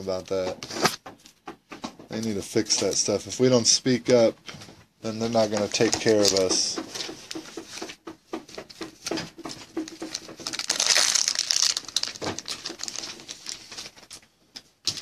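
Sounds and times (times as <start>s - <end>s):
foil wrapper crinkling: 9.8s - 14.2s.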